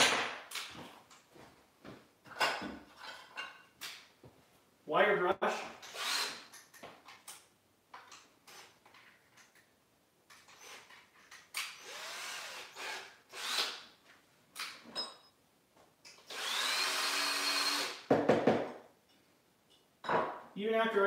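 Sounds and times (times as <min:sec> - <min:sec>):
cordless drill spinning wire brush: 0:05.9 - 0:06.4, 0:11.8 - 0:13.8, 0:16.3 - 0:18.0.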